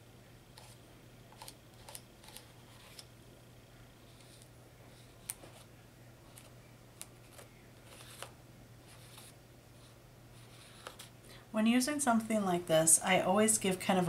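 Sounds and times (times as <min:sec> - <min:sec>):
palette knife scraping: 0:00.6 - 0:03.1, 0:04.0 - 0:05.7, 0:07.2 - 0:08.3, 0:08.9 - 0:11.2.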